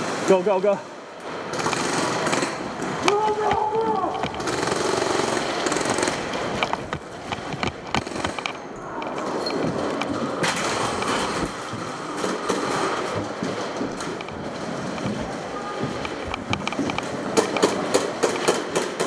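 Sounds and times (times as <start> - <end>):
sharp clicks and knocks: 1.2 - 19.0
gear rattling: 1.5 - 18.8
shuffling footsteps on hard floor: 13.1 - 17.4.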